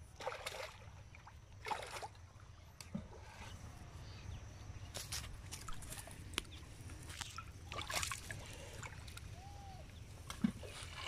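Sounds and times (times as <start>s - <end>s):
fish thrashing and splashing: 7.1s - 9.2s.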